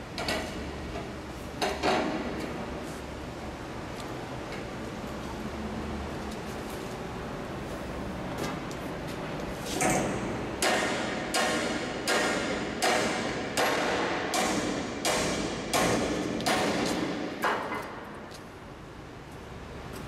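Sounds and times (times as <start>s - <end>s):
sledgehammer striking steel: 9.8s - 17.7s.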